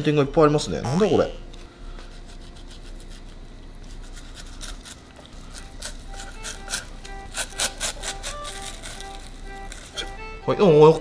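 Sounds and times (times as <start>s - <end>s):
knife scraping fish skin: 2.1s - 10.2s.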